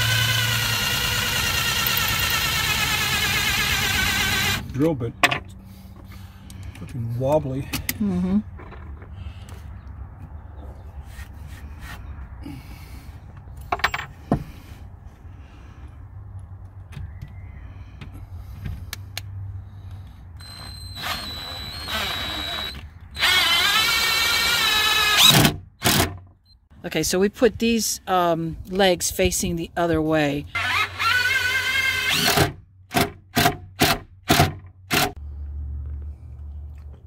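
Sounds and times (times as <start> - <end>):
drill motor whining into wood: 0.0 - 4.7, 20.4 - 26.1, 30.5 - 32.6.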